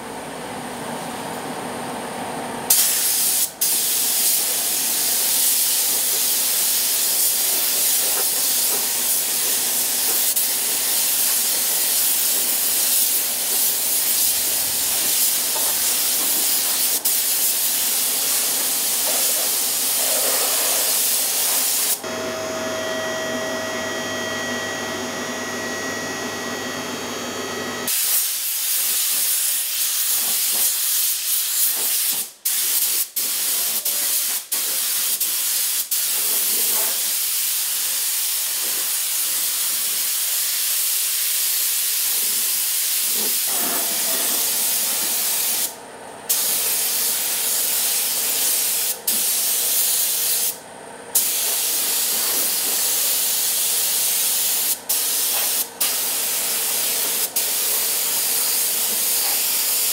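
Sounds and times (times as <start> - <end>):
paint spray gun hissing: 2.7 - 22.0, 27.9 - 45.7, 46.3 - 50.6, 51.2 - 59.9
machine hum with a whine: 22.0 - 27.9.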